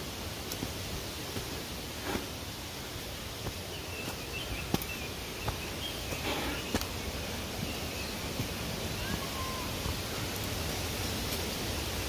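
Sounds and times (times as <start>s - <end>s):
footsteps on forest trail: 0.0s - 9.5s
outdoor hiss: 0.0s - 12.0s.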